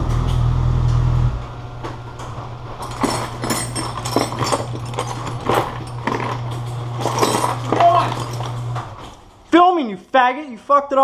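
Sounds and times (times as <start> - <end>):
metal bolts and tools rattling: 2.8 - 8.7.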